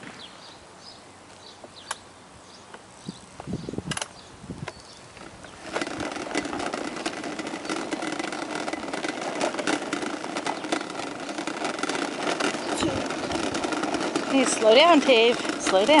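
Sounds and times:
plastic tricycle wheels on asphalt: 0.0 - 16.0.

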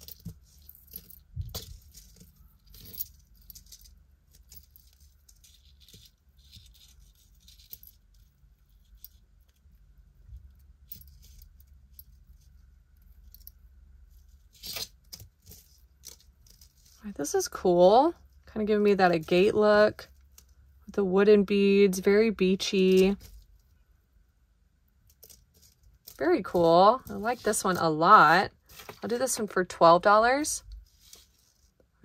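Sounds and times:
jewelry clinking and jingling: 0.0 - 9.8, 10.4 - 19.6.

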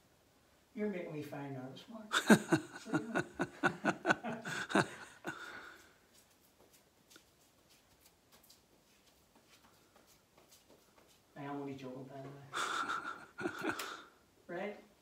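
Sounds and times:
man laughing: 2.1 - 5.7, 12.5 - 14.1.

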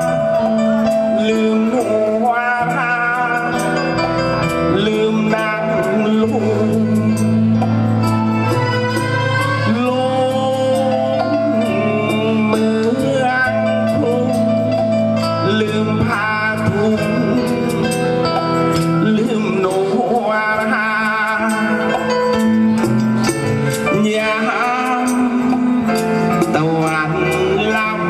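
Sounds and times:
amplified band music: 0.0 - 28.0
man singing into a microphone: 0.0 - 28.0.

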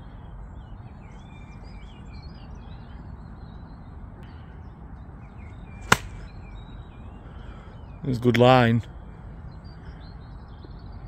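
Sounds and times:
birds chirping: 0.0 - 11.0
golf club striking ball: 5.9 - 6.2.

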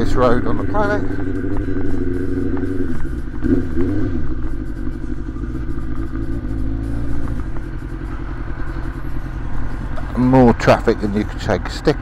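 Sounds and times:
motorcycle engine running: 0.0 - 12.0.

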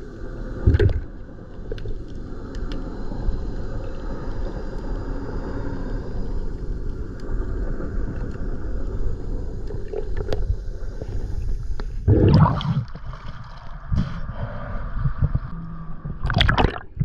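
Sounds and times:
faint clicks: 1.6 - 2.9
low underwater rumble: 9.2 - 17.0.

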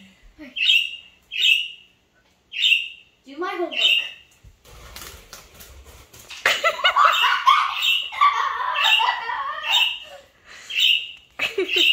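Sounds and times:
parakeet squawks: 7.1 - 10.0.

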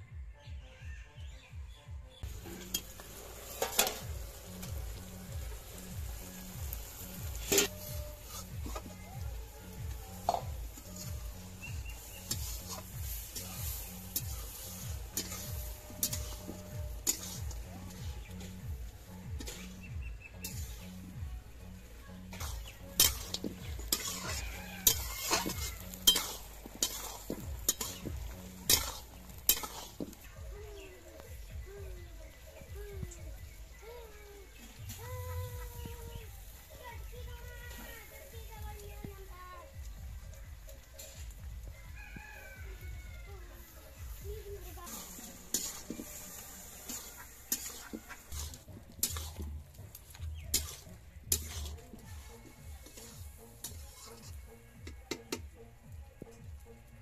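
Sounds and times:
curry sizzling: 2.2 - 57.0
metal spatula scraping iron pan: 2.3 - 31.0, 43.6 - 54.5
metal spatula clinking on wok: 22.3 - 29.9.

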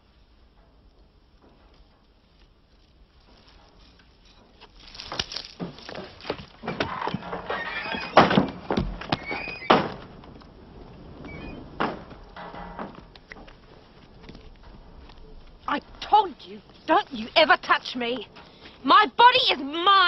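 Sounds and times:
footsteps on wooden boards: 0.7 - 18.8
screen door squeaking and banging: 5.6 - 10.3, 11.1 - 13.5.

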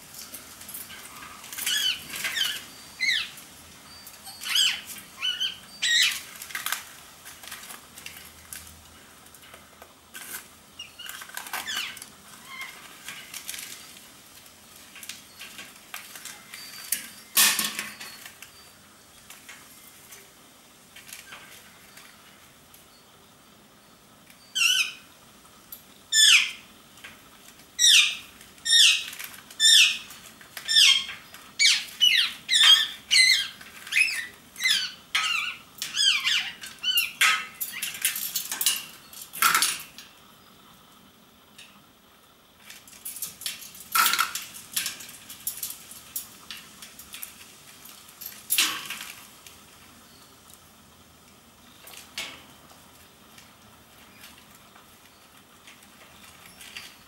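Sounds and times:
parakeets calling shrilly: 1.0 - 6.4, 10.8 - 13.3, 24.4 - 25.1, 26.1 - 26.6, 27.8 - 38.1.

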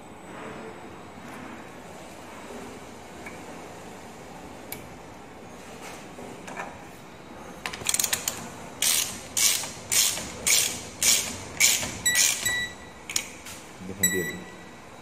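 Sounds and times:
ratchet wrench clicking: 7.8 - 12.5.

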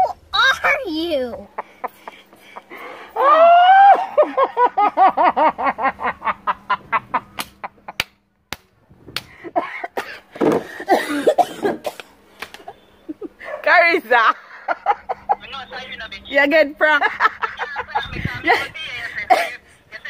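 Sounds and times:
woman laughing: 0.0 - 7.7, 13.1 - 15.6, 16.8 - 20.0.

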